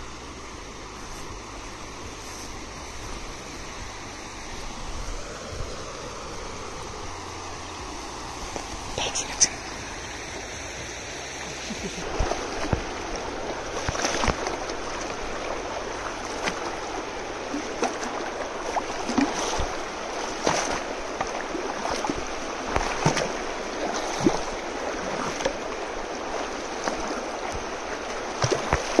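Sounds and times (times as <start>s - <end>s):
river flowing: 0.0s - 29.0s
feet splashing through water: 7.2s - 29.0s.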